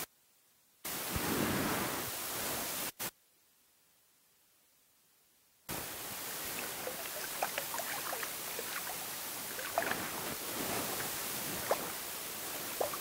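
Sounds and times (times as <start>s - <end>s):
creek rushing: 5.7s - 13.0s
small water splashes: 6.2s - 13.0s.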